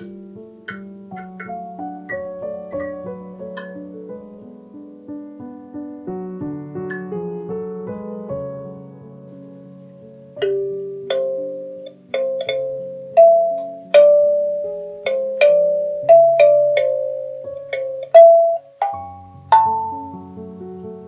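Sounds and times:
kalimba melody: 0:10.4 - 0:20.3
low held kalimba notes: 0:10.4 - 0:20.3.

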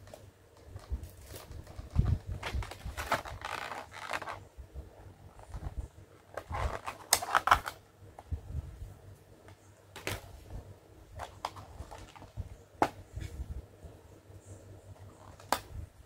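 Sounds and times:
plastic packaging crinkling: 0:00.7 - 0:04.4, 0:05.4 - 0:07.8.

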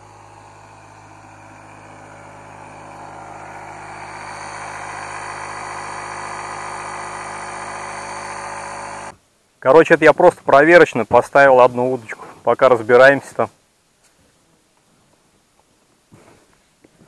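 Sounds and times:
motor humming: 0:00.0 - 0:09.2.

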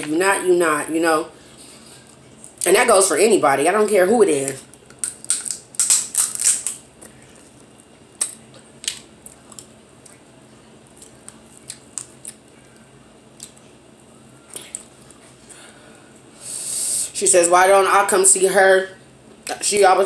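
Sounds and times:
close-up eating sounds: 0:04.6 - 0:15.6
crab shells cracking: 0:04.7 - 0:06.9.

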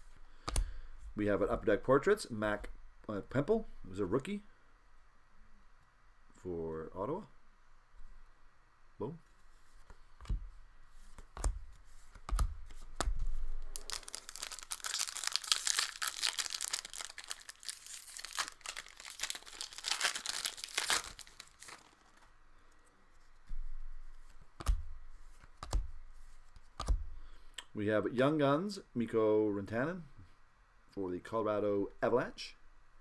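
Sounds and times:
wrapper tearing and crinkling: 0:13.6 - 0:22.3.

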